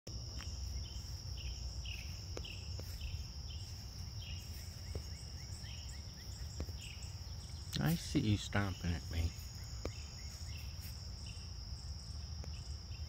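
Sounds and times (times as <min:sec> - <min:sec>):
insect high-pitched trill: 0:00.1 - 0:13.0
insect falling chirp: 0:00.3 - 0:11.3.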